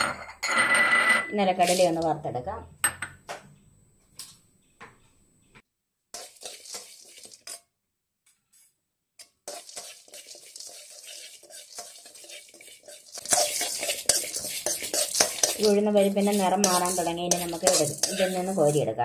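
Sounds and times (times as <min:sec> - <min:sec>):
spoon scraping metal wok: 0:00.0 - 0:02.2, 0:06.1 - 0:07.7, 0:08.5 - 0:19.0.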